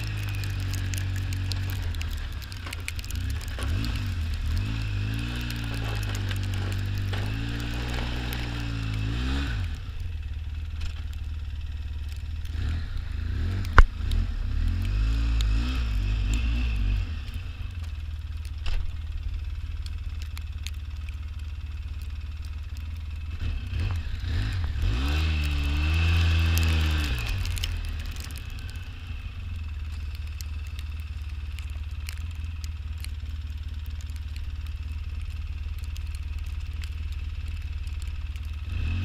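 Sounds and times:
off-road vehicle engine revving: 0.0s - 17.8s, 23.2s - 29.4s, 37.8s - 39.0s.

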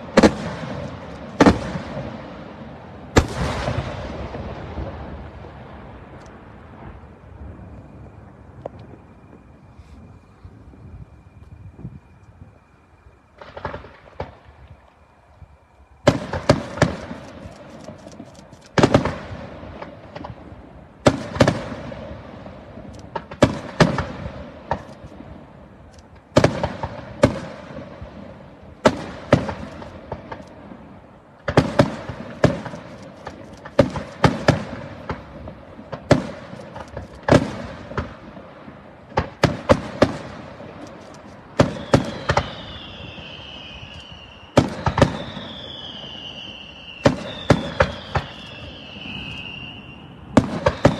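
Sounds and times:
fireworks shells bursting: 39.1s - 50.9s
high whistle dipping in pitch: 41.8s - 44.6s, 45.2s - 50.9s.

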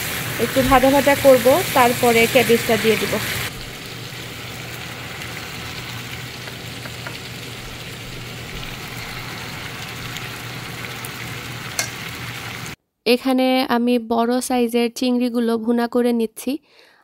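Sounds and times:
chicken sizzling in a pan: 0.0s - 12.8s.

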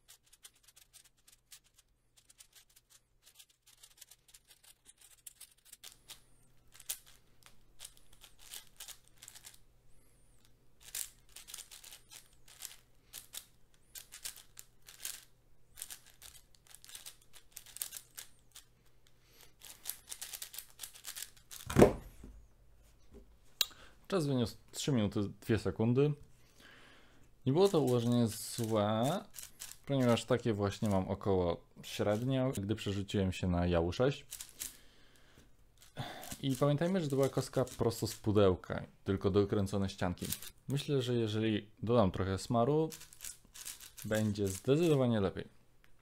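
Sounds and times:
plastic puzzle cube clicking: 0.2s - 9.6s, 10.8s - 18.7s, 19.6s - 21.7s, 27.6s - 30.4s, 34.3s - 34.8s, 35.8s - 38.3s, 42.9s - 45.0s.

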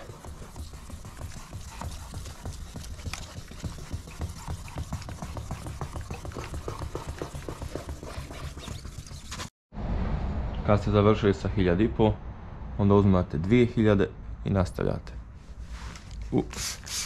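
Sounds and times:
wet sanding by hand: 0.0s - 9.5s, 16.6s - 17.0s.

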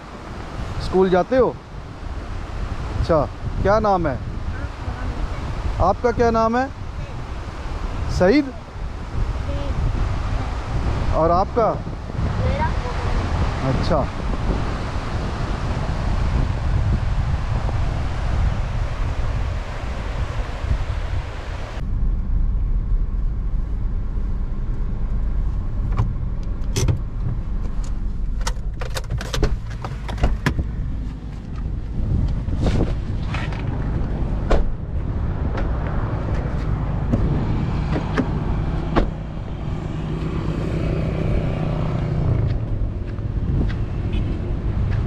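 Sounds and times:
car rumbling: 0.0s - 45.0s
car door clicks and knocks: 28.4s - 30.7s, 34.5s - 34.8s, 37.9s - 39.2s.

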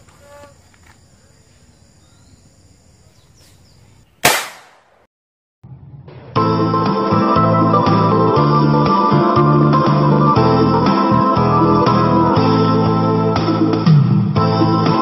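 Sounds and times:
marble gun bang: 4.2s - 5.0s.

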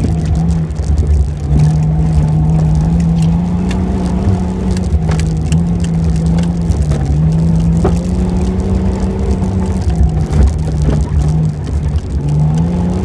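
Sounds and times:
vehicle engine running hard: 0.0s - 13.0s.

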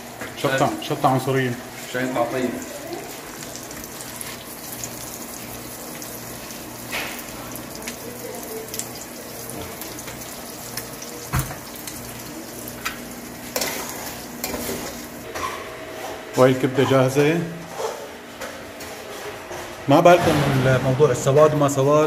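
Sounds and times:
eggs sizzling in oil: 0.0s - 15.3s.

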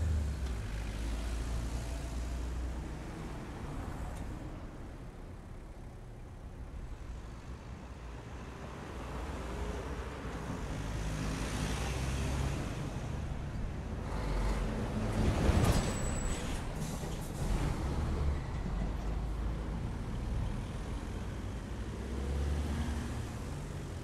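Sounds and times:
city traffic noise: 0.0s - 24.0s
brief high squeal: 15.8s - 16.7s.

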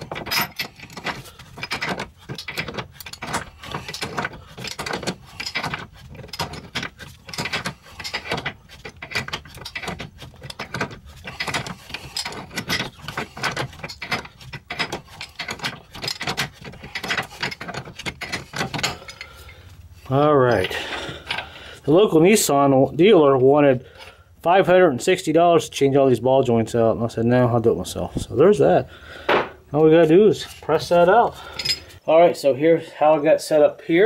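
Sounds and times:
wrench clicking and scraping on nut: 0.0s - 19.6s.

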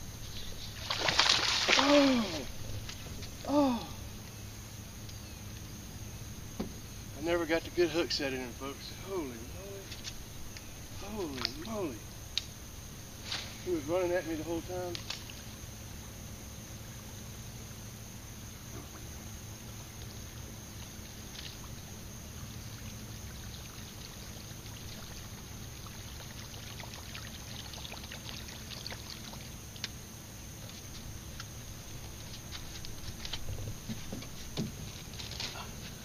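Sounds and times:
water trickling: 0.0s - 4.5s, 7.4s - 12.4s, 18.9s - 35.7s
boat low rumble: 0.0s - 36.0s.

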